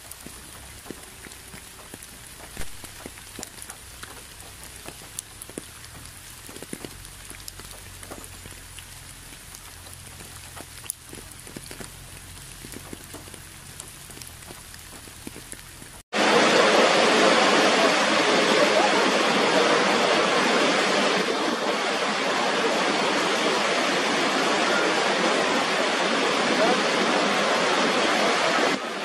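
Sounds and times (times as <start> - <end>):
light rain pattering: 0.0 - 29.0
waterfall rushing: 16.1 - 29.0.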